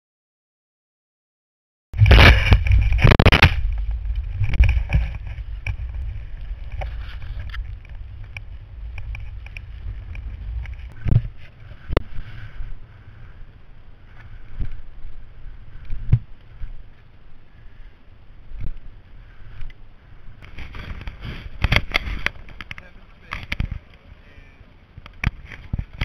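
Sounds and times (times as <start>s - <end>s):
low wind rumble: 2.0s - 26.0s
snow hissing under skis: 20.7s - 21.6s.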